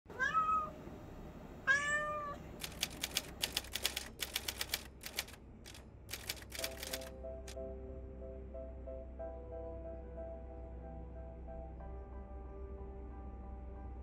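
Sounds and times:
kitten meowing: 0.2s - 0.8s, 1.7s - 2.4s
typewriter keystrokes clacking: 2.6s - 7.1s.

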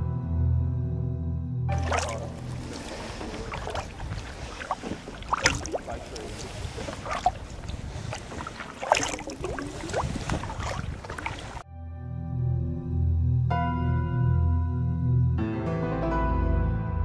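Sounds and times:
kayak paddles splashing: 1.7s - 11.6s
water gurgles and drips: 1.7s - 11.6s.

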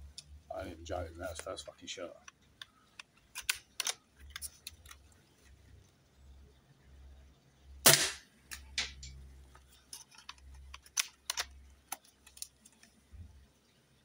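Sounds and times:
air rifle shot: 7.8s - 8.3s.

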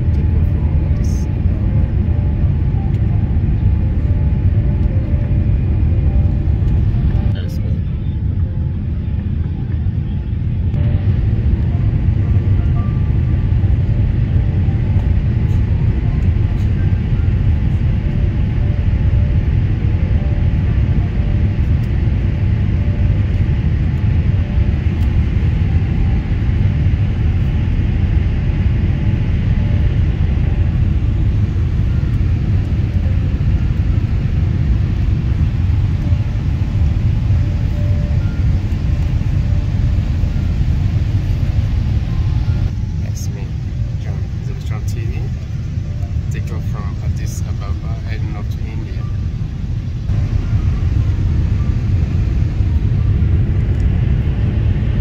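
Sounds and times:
airliner cabin engine rumble: 0.0s - 55.0s.

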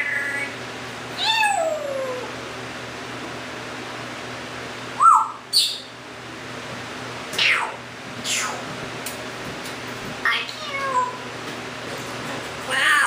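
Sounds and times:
parrot calling: 1.2s - 2.3s, 5.0s - 6.0s, 7.4s - 8.6s.

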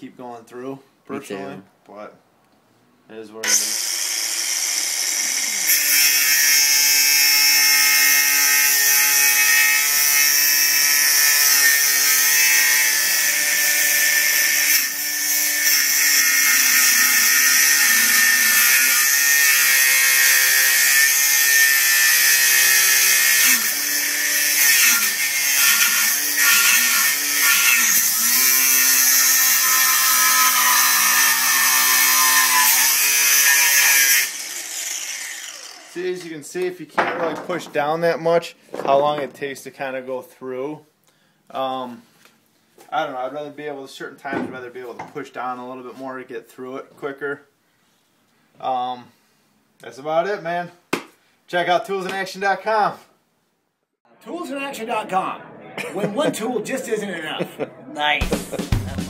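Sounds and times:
angle grinder cutting metal: 3.4s - 36.2s.

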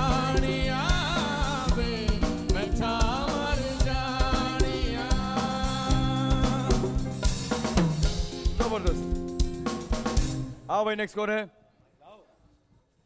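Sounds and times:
people singing into microphones: 0.0s - 7.2s
backing music with drum beat: 0.0s - 10.6s.

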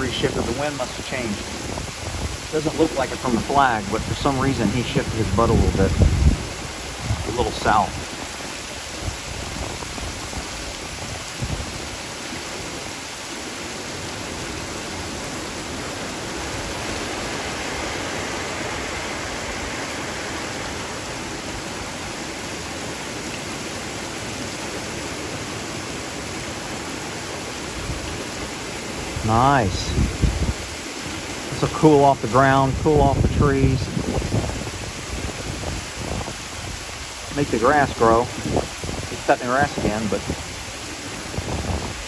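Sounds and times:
heavy rain falling: 0.0s - 42.0s.

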